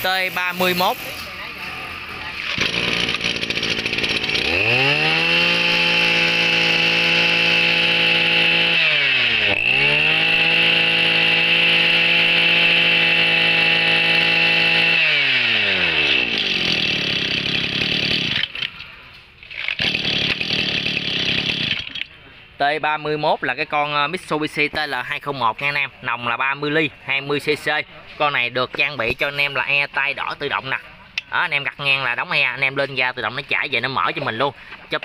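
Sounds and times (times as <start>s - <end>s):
brush cutter engine revving: 1.9s - 18.8s, 19.5s - 22.1s.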